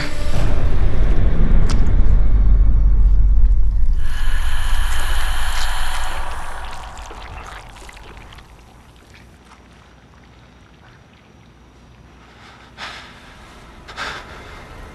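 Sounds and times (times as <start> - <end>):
low rumbling drone: 0.0 - 9.4
burst of hiss: 4.0 - 8.8
liquid splashing and pouring: 4.1 - 11.9.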